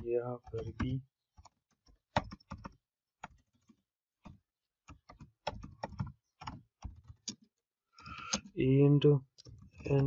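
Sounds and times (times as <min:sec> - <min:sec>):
computer keyboard typing: 0:00.0 - 0:08.5.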